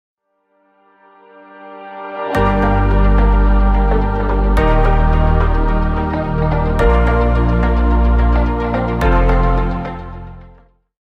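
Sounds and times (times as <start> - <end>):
sustained synth chord: 0.8 - 10.7
deep bass: 2.4 - 10.6.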